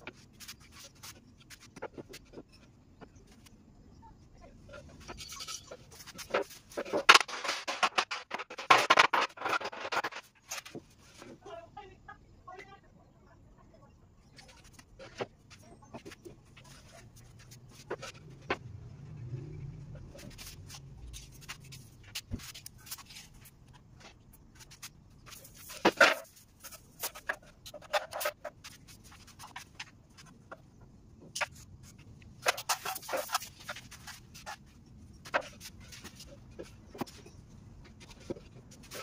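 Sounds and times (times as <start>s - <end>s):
wooden boards knocking and scraping: 5.9s - 10.9s, 24.7s - 30.6s, 35.2s - 39.0s.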